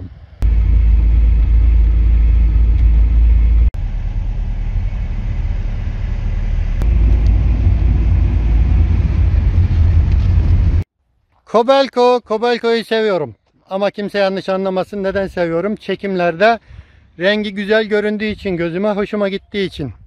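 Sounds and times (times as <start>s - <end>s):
low engine rumble: 0.0s - 10.9s.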